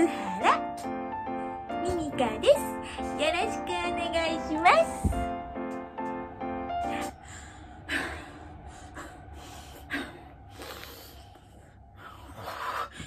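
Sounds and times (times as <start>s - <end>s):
woman breathing heavily: 2.7s - 3.2s, 6.7s - 13.0s.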